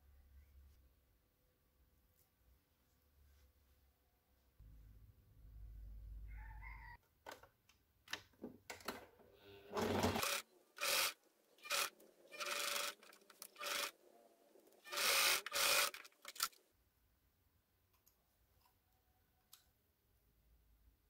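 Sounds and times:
sewing machine bursts: 9.7s - 14.0s, 14.8s - 16.5s.

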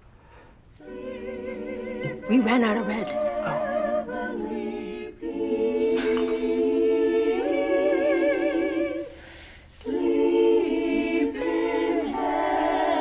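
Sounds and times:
women singing in harmony: 0.7s - 13.0s.

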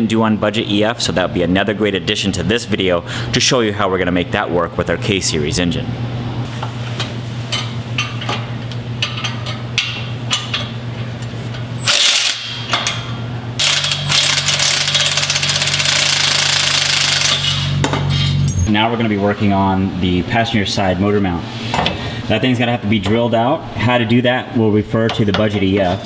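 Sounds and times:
steady low hum: 0.0s - 26.0s
handheld power tool rattling: 11.8s - 12.6s, 13.6s - 17.6s.

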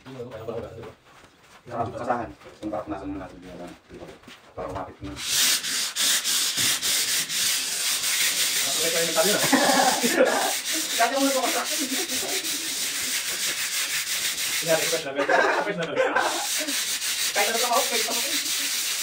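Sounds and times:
sanding a wall by hand: 4.7s - 19.0s.

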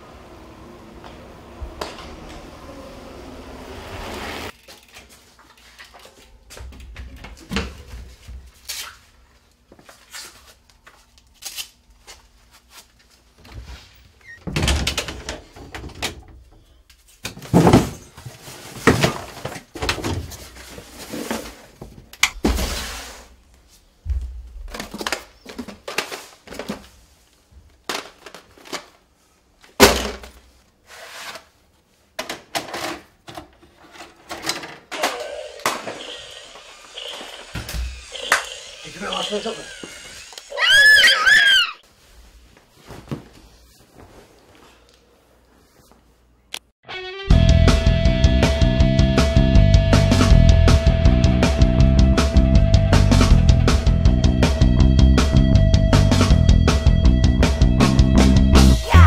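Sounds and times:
objects thunking and clattering: 14.4s - 16.6s, 17.2s - 23.0s, 29.8s - 30.4s.

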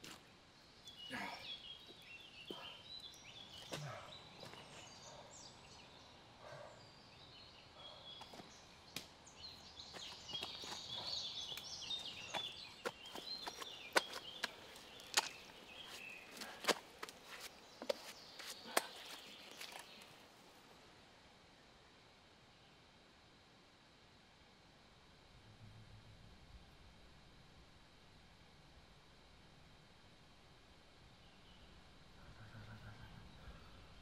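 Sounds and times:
small birds chirping: 0.0s - 20.4s, 31.2s - 34.0s.

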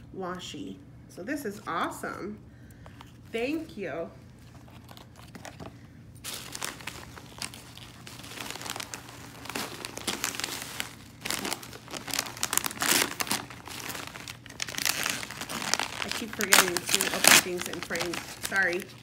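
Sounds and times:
wrapping paper crinkling and tearing: 4.4s - 19.0s.

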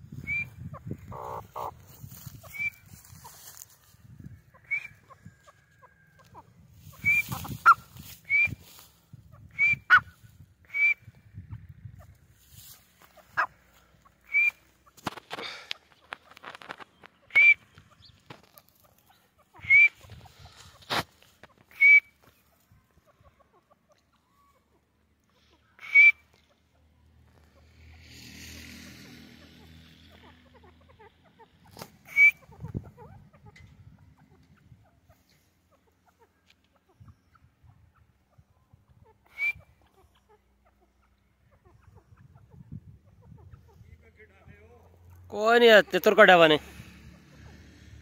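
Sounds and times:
bird whistled call notes: 0.2s - 0.6s, 2.4s - 2.9s, 4.6s - 5.1s, 7.0s - 8.7s, 9.5s - 10.1s, 10.7s - 11.1s, 14.2s - 14.7s, 17.2s - 18.1s, 19.6s - 20.0s, 21.7s - 22.2s, 25.8s - 26.3s, 32.1s - 32.5s, 39.3s - 39.7s.

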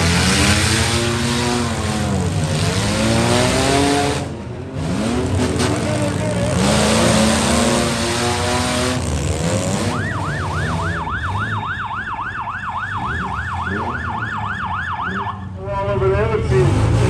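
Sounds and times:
car engines revving: 0.0s - 17.0s
electronic siren yelping: 9.6s - 15.6s.

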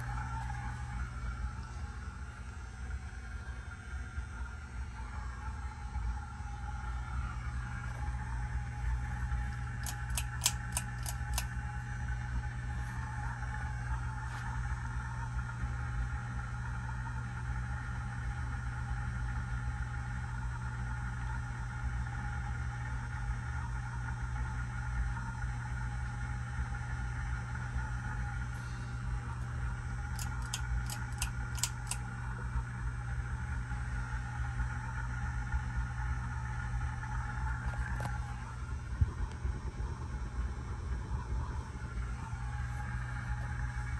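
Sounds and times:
ceiling fan motor humming: 0.0s - 43.9s
pull chain clicks: 9.8s - 11.5s, 30.2s - 32.0s.

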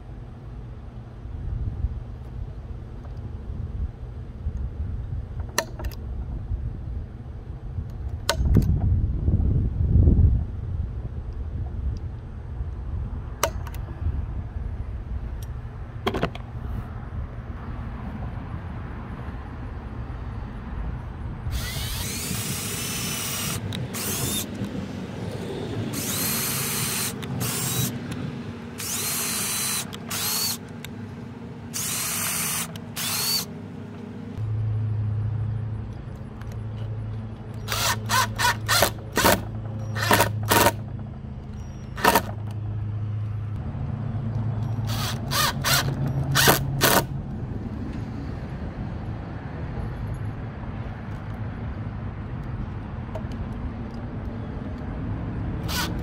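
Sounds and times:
cordless drill boring into wood: 21.5s - 24.6s, 25.9s - 28.0s, 28.8s - 30.6s, 31.7s - 33.5s, 37.7s - 40.8s, 44.9s - 47.1s, 55.6s - 56.0s
impact driver driving screws: 21.6s - 24.7s, 25.9s - 28.0s, 28.8s - 30.6s, 31.8s - 33.5s, 37.6s - 40.8s, 42.0s - 42.4s, 44.8s - 47.1s, 55.6s - 56.0s.

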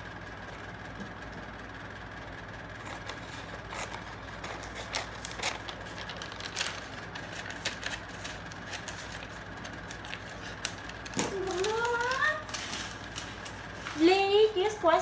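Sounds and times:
low background hum: 0.0s - 15.0s
scissors snipping paper: 2.8s - 13.6s.

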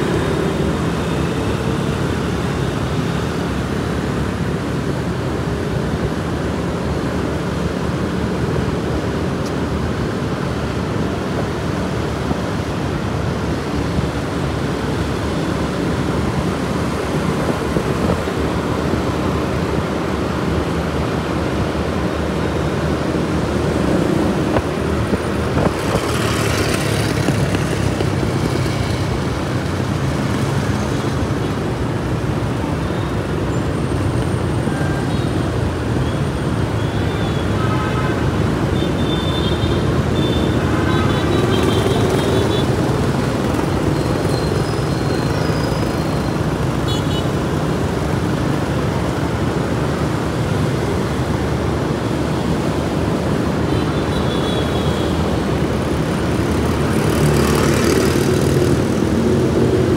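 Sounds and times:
road noise: 0.0s - 59.9s
rumble of small engines: 38.5s - 59.9s.

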